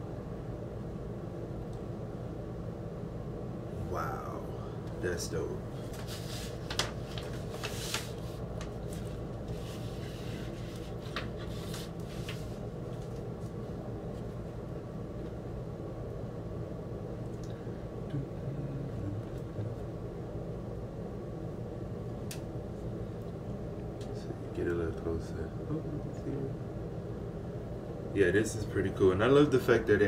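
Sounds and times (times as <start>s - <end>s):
low room hum: 0.0s - 30.0s
paper sleeve rustling: 5.8s - 12.6s.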